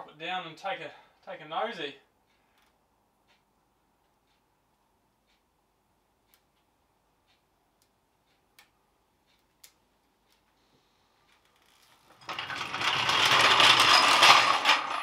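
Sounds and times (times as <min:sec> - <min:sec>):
jack rattling and grinding: 0:12.1 - 0:15.0.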